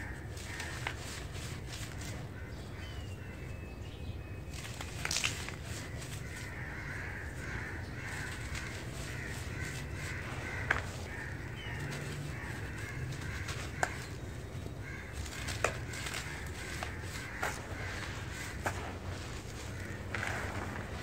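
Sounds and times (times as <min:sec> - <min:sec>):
dirt crumbled between hands: 0:04.5 - 0:21.0
sharp crunches: 0:04.5 - 0:21.0.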